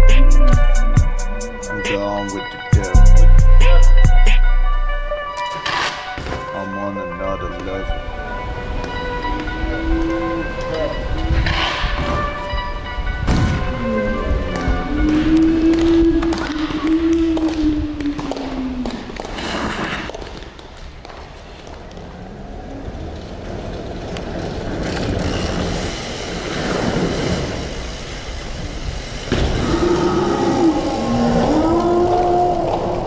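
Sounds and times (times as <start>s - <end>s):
skateboard wheels rolling on pavement: 14.5s - 30.1s.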